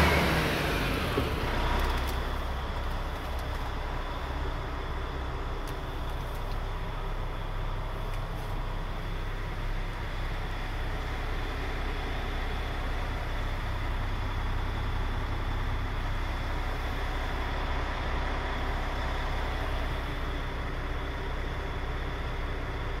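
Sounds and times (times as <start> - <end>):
diesel truck engine idling: 0.0 - 23.0.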